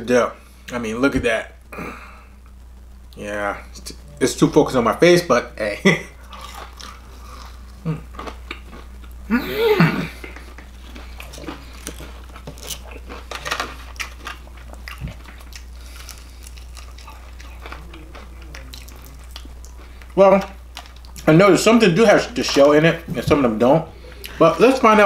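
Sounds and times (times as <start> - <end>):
person chewing crunchy food: 6.2 - 21.3.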